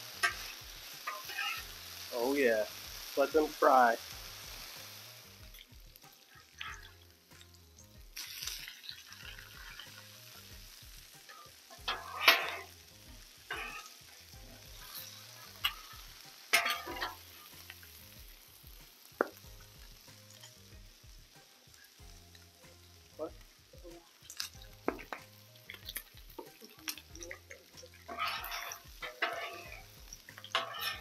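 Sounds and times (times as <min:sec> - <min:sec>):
metal spatula scraping griddle: 0:00.0 - 0:02.5, 0:11.2 - 0:18.0, 0:25.8 - 0:31.0
food sizzling on griddle: 0:00.0 - 0:31.0.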